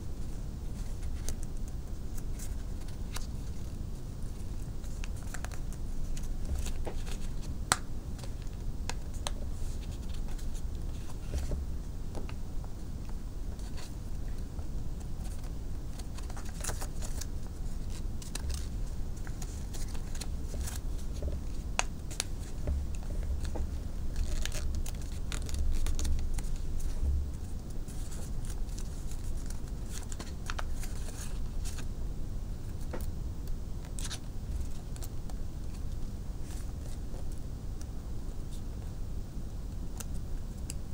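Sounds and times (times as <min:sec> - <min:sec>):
steady low hum: 0:00.0 - 0:40.9
paper folding and crinkling: 0:00.6 - 0:12.4, 0:13.0 - 0:31.9, 0:33.8 - 0:37.4.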